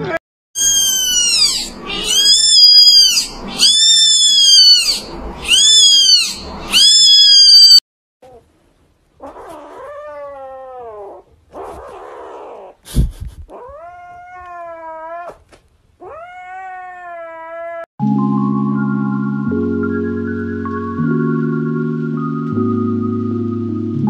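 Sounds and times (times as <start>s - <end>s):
kitten mewing: 0.0s - 8.4s
low cat cry: 0.0s - 8.5s, 9.2s - 12.8s, 13.5s - 17.9s.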